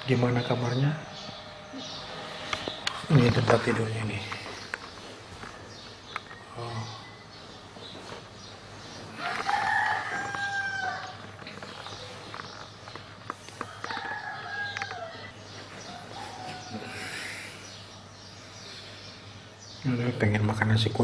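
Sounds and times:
rooster crowing: 9.1 - 11.4, 13.6 - 17.4.

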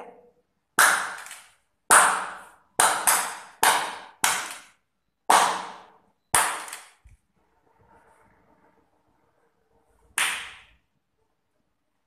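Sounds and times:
hand claps: 0.8 - 4.7, 10.2 - 10.7.

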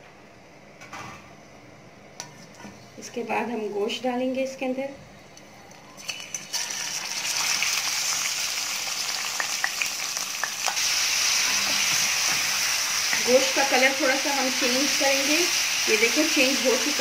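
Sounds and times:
meat sizzling in hot oil: 6.0 - 17.0.

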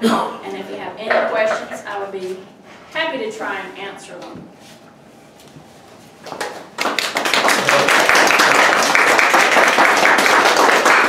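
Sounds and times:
audience applauding: 6.4 - 11.0.

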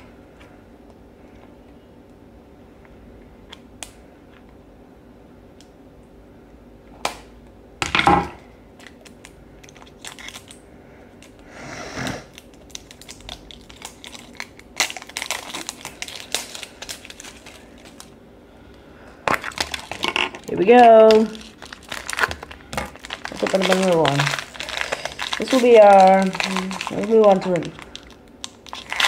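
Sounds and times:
plastic packaging crinkling: 8.8 - 10.6, 12.3 - 18.2, 19.2 - 29.0.

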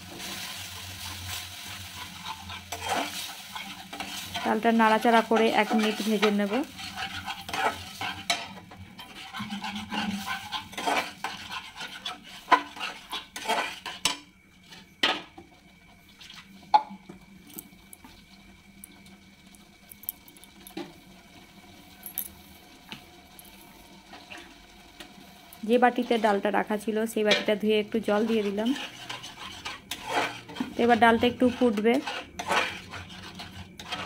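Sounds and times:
metal spatula scraping a pan: 0.2 - 15.3, 27.2 - 34.0.

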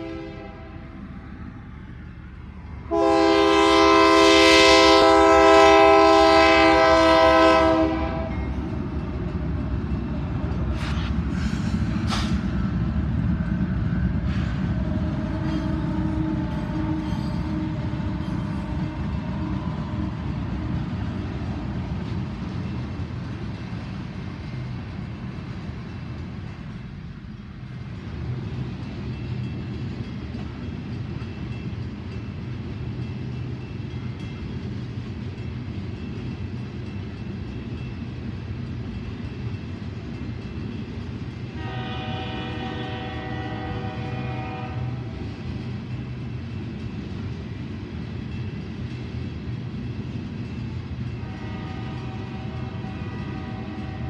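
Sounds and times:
multi-tone train horn: 0.0 - 1.1, 2.9 - 8.6, 14.8 - 20.1, 41.5 - 45.4, 51.1 - 54.0
diesel locomotives passing: 0.0 - 54.0.

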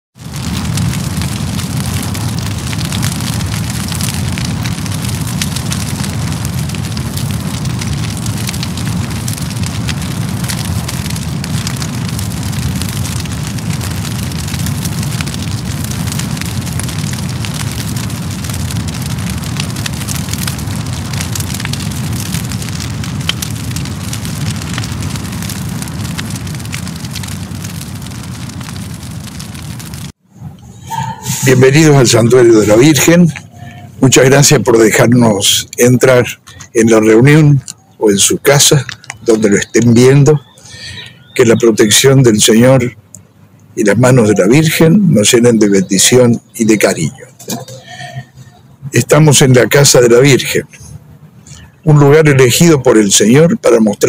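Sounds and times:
low rumble: 0.2 - 34.2
dense crackling hiss: 0.2 - 54.0.

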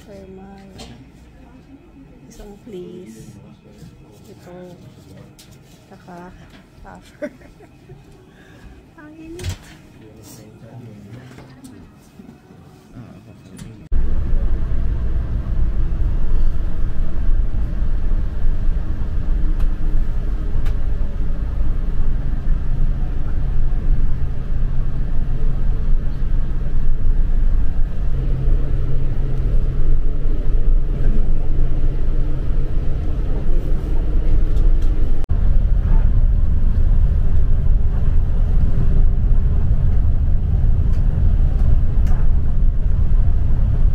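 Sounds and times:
coach engine drone: 13.0 - 43.9
road rumble: 13.8 - 43.9.

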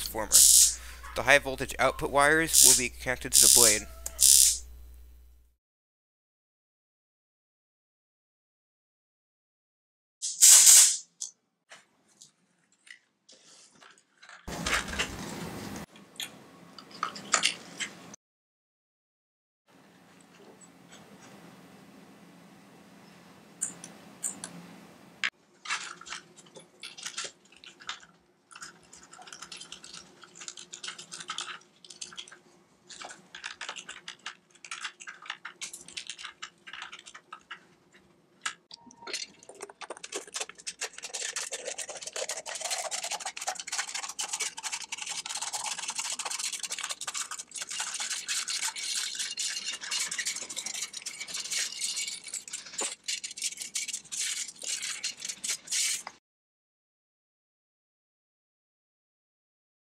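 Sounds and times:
clicks and rustles of small parts: 0.0 - 5.2, 10.2 - 15.3, 15.9 - 18.2, 25.5 - 56.2
scissors cutting aluminium can: 3.4 - 4.6.

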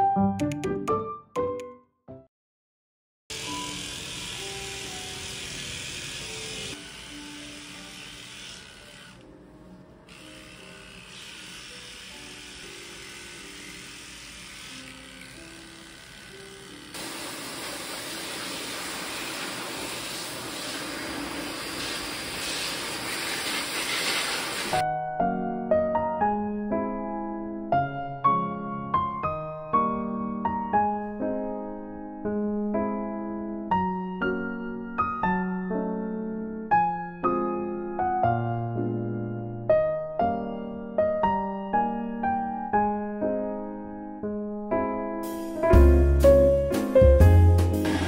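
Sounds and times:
grooming dryer blowing: 3.3 - 9.3, 10.1 - 24.8
soft background music: 3.3 - 17.0, 24.8 - 48.0
electric pet clippers buzzing: 3.3 - 24.8.

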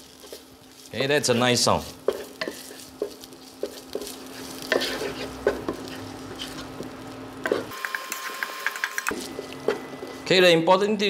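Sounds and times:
spice paste sizzling in pot: 0.0 - 10.3
wooden spatula scraping pot: 1.2 - 8.4.

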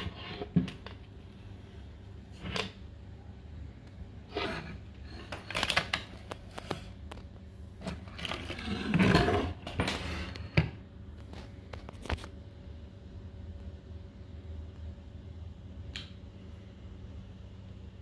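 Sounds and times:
rough scrape on wood: 0.0 - 0.7, 4.3 - 5.4, 7.8 - 10.4.

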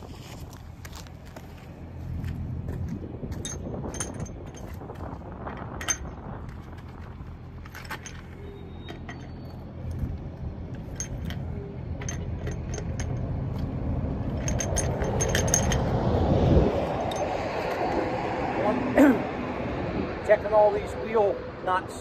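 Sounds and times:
low rumble: 1.6 - 20.3
wrench clinking on lug nuts: 3.3 - 5.0, 5.6 - 16.1, 17.0 - 17.9.

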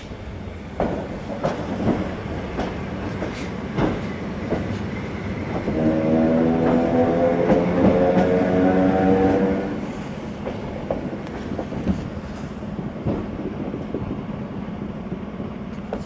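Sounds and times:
train rumble: 0.0 - 16.0
train wheels clacking over rail joints: 0.7 - 9.7, 10.4 - 14.1.

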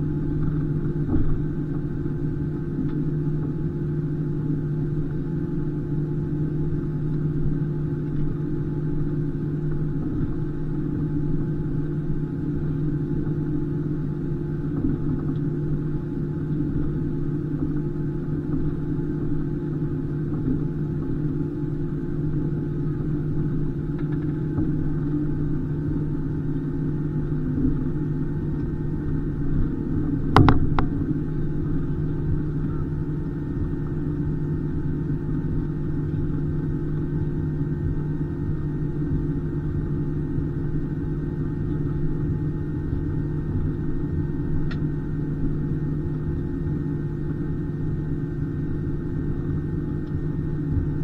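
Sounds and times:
aircraft cabin rumble: 0.0 - 51.0.

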